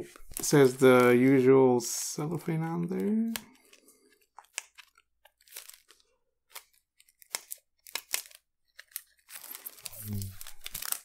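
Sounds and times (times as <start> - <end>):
cellophane crinkling: 2.8 - 11.0.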